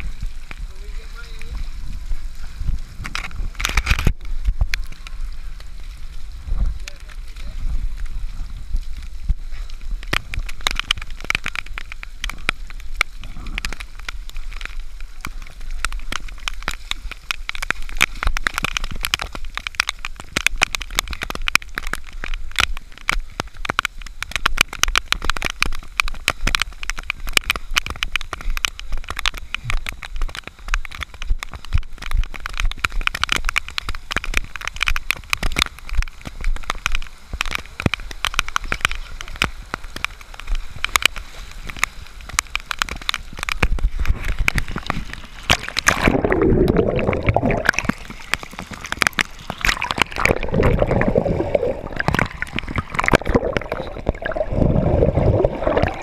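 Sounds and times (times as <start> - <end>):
crackling and rustling on camera: 0.0 - 56.0
low rumble: 49.8 - 56.0.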